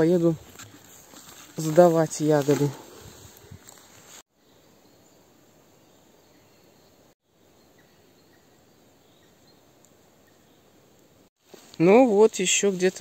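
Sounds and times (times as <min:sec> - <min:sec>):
faint insect sounds: 0:02.7 - 0:13.0.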